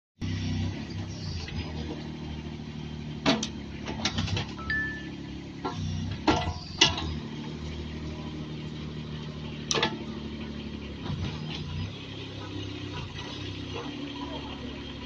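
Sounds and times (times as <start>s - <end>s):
diesel engine running: 0.2s - 15.0s.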